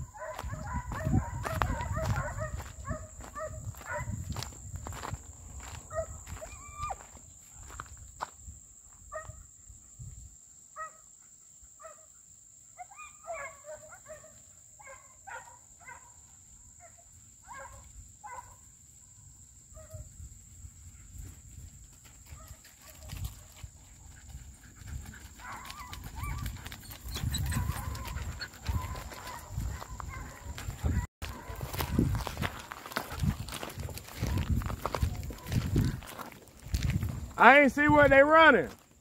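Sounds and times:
distant hounds barking: 0:00.0 - 0:04.2, 0:05.6 - 0:07.1, 0:12.7 - 0:16.2, 0:16.8 - 0:18.6, 0:25.3 - 0:33.1, 0:34.2 - 0:36.2.

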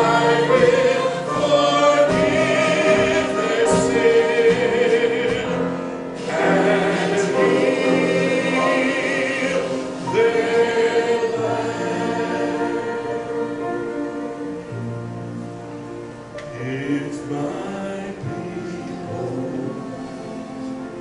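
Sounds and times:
group singing worship song: 0:00.0 - 0:14.7.

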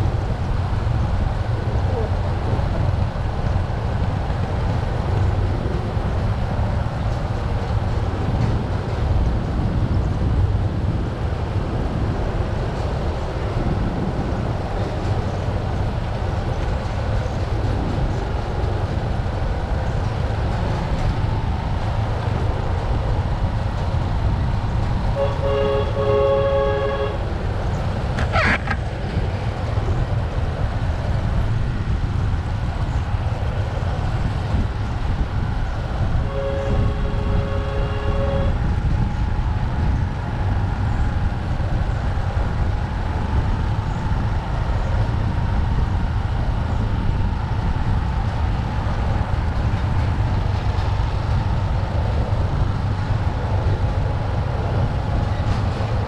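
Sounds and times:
wind noise on microphone: 0:00.0 - 0:56.0
vehicle horn toot: 0:25.2 - 0:27.2, 0:36.3 - 0:38.6.

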